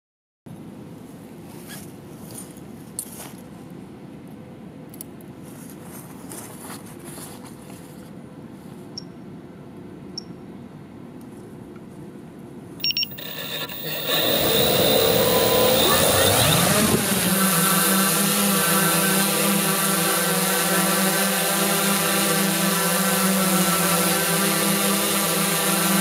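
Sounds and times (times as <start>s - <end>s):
outdoor background noise: 0.5s - 26.0s
quadcopter motors spinning up: 12.8s - 26.0s.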